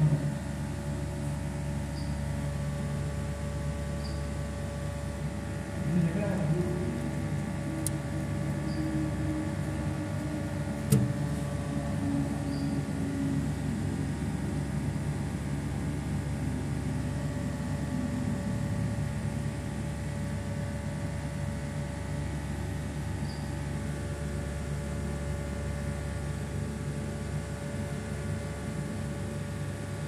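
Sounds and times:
electric pump motor humming: 0.0s - 20.9s
sharp click: 10.9s - 11.2s.

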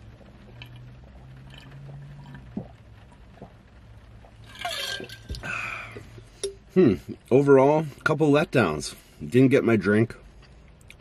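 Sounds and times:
liquid and ice rushing: 0.0s - 6.4s
low steady hum: 0.0s - 11.0s.

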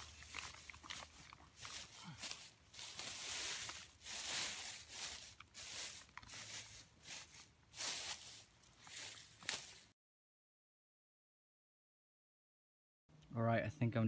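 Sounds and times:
fern fronds rustling: 0.0s - 9.9s.

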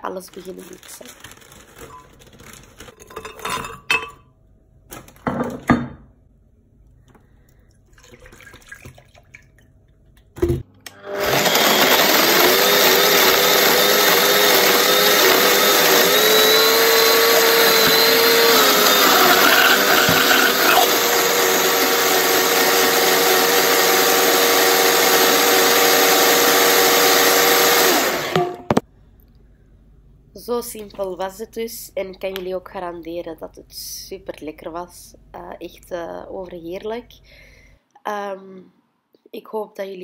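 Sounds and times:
blender running: 10.9s - 28.8s.

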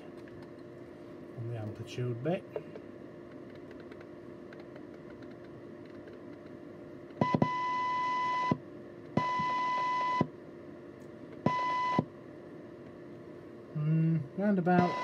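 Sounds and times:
radio test tone: 14.8s - 15.0s.

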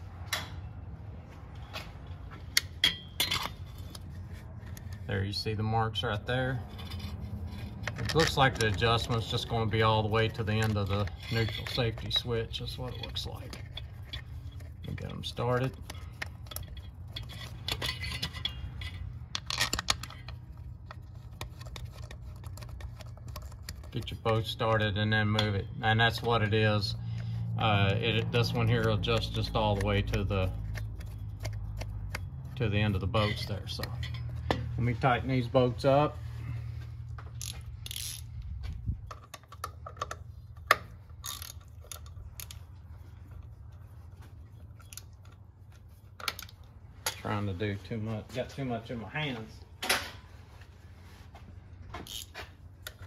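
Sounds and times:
metal bolts clicking and scraping: 2.4s - 43.5s, 44.2s - 47.6s, 51.9s - 53.0s
socket ratchet clicking: 37.4s - 38.3s.

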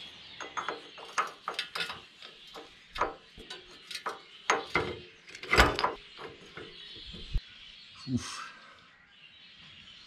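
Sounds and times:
metal clatter: 0.4s - 7.4s
metal clicks and knocks: 0.4s - 7.4s.

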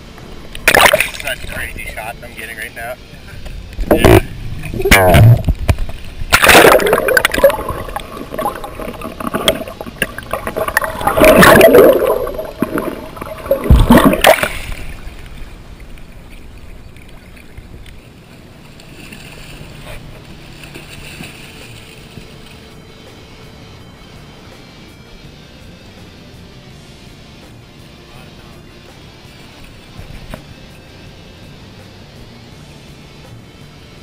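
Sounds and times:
water sloshing and gurgling: 0.0s - 2.1s, 3.1s - 22.9s
loud water splashing: 0.6s - 1.4s, 6.2s - 16.4s.

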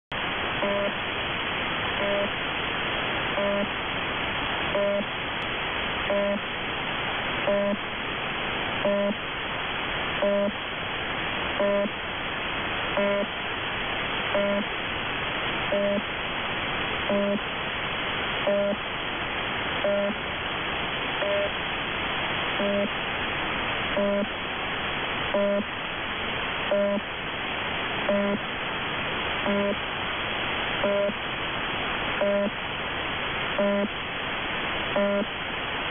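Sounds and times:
radio static: 0.5s - 1.1s, 1.9s - 2.4s, 3.2s - 3.8s, 4.6s - 5.3s, 6.0s - 6.5s, 7.3s - 7.9s, 8.8s - 9.3s, 10.1s - 10.6s, 11.4s - 12.0s, 12.8s - 13.4s, 14.2s - 14.8s, 15.6s - 16.2s, 17.0s - 17.5s, 18.3s - 18.8s, 19.8s - 20.2s, 21.2s - 21.6s, 22.5s - 23.1s, 23.8s - 24.5s, 25.2s - 25.8s, 26.5s - 27.2s, 28.0s - 28.5s, 29.3s - 29.9s, 30.8s - 31.3s, 32.1s - 32.6s, 33.5s - 34.0s, 34.8s - 35.4s.

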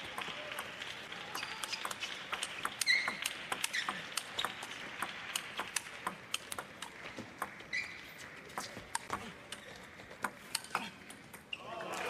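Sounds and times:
ping pong ball bouncing on table: 0.0s - 7.6s
ping pong ball clicking off rackets: 0.0s - 11.5s.

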